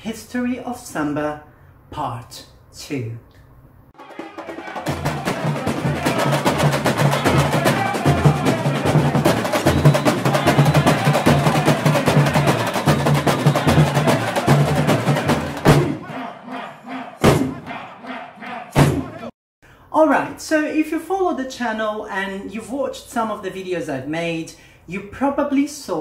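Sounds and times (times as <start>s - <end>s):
samba percussion music: 4.0s - 16.4s, 17.2s - 18.0s, 18.7s - 19.3s.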